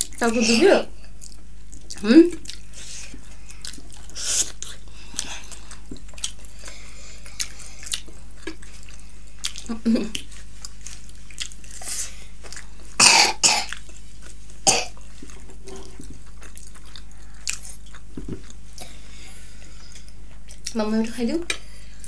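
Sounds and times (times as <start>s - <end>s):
close-miked chewing: 0.9s - 20.9s
person coughing: 13.0s - 13.7s, 14.7s - 14.9s.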